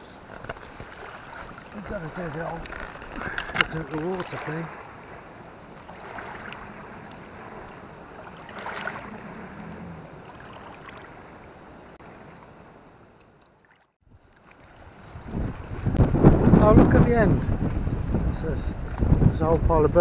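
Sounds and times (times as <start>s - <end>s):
waves lapping against stones: 0.0s - 19.1s.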